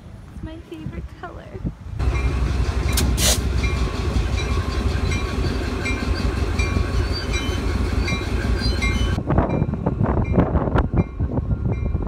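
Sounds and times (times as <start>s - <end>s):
wind gusts on microphone: 9.2s - 12.0s.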